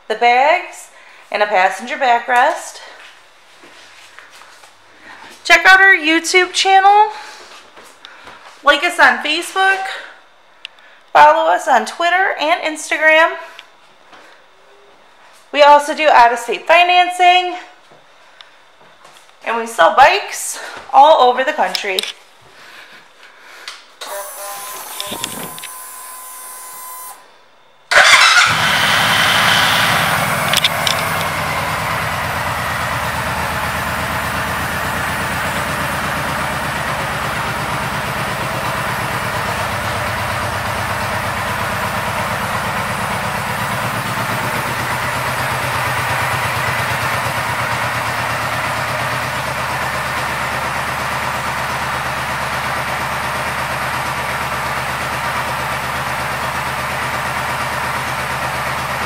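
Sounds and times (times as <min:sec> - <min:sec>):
motorcycle engine starting and idling: 0:24.0 - 0:27.2, 0:27.9 - 0:59.0.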